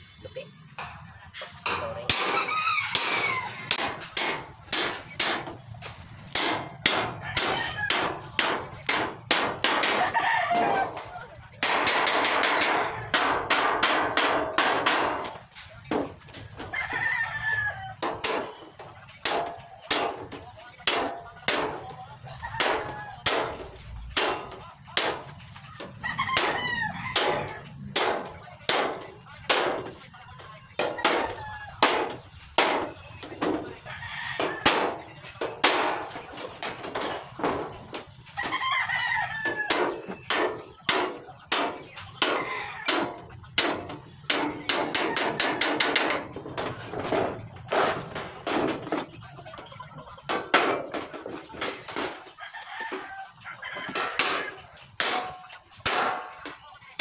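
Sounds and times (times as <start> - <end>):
chickens clucking: 0.0 - 57.0
hammer striking metal sheet: 0.8 - 2.4, 3.0 - 5.6, 6.3 - 10.0, 11.6 - 16.1, 18.0 - 18.5, 19.2 - 21.8, 22.6 - 25.2, 27.2 - 29.9, 30.8 - 33.6, 34.6 - 38.1, 39.7 - 49.0, 55.0 - 56.6
rooster crowing: 2.2 - 3.8, 7.0 - 8.3, 9.8 - 11.0, 16.7 - 18.0, 26.0 - 27.8, 33.8 - 34.8, 38.4 - 40.1, 42.2 - 43.1, 52.4 - 54.6.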